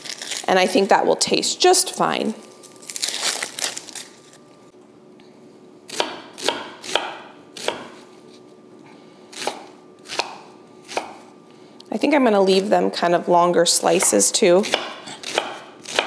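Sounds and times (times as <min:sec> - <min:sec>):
knife slicing onion: 0:05.9 - 0:08.1, 0:09.3 - 0:11.3, 0:13.9 - 0:16.0.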